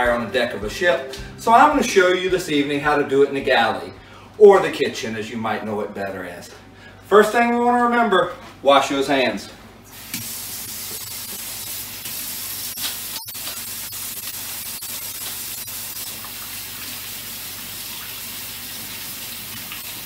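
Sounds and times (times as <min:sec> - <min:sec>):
faucet running into steel sink: 0:09.9 - 0:20.0.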